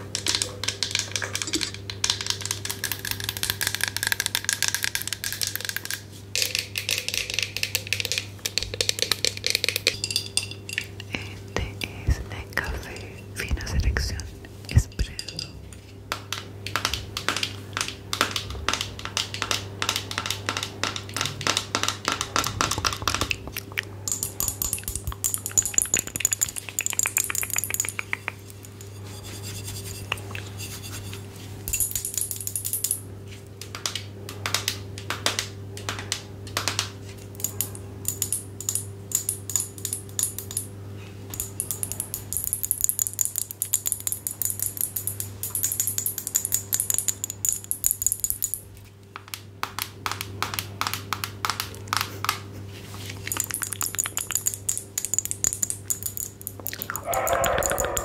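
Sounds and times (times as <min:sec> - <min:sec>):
scratching on hard objects: 0:18.0 - 0:31.7, 0:56.4 - 0:58.0.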